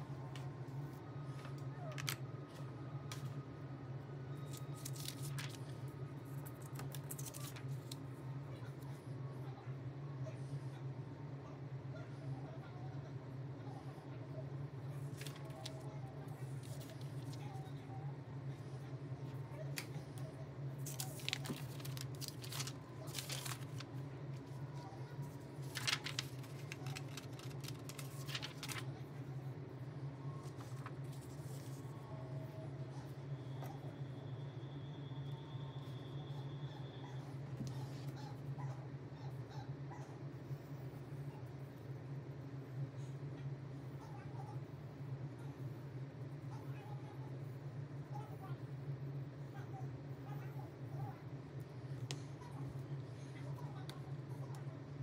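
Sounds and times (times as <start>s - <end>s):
steady low hum: 0.0s - 55.0s
low hum: 15.0s - 36.9s
paper rustling and sliding: 20.8s - 24.5s, 25.3s - 28.8s.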